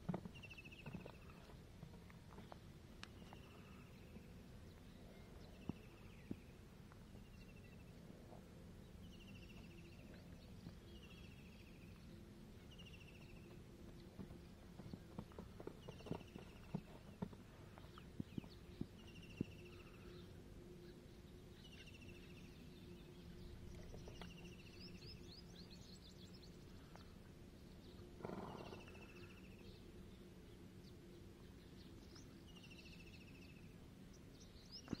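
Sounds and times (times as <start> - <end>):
steady low hum: 0.0 - 35.0
horse hooves on sand: 13.0 - 19.9.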